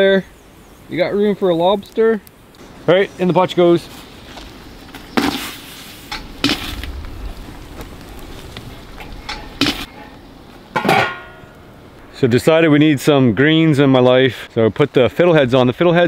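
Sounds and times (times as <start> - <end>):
metal cookware clanking: 10.8 - 11.5.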